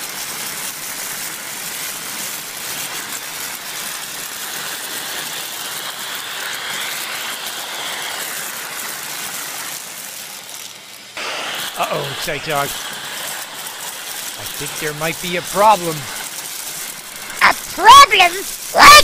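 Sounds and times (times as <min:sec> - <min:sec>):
vacuum cleaner running: 0:02.4 - 0:19.0
beans rattling up metal tube: 0:12.0 - 0:19.0.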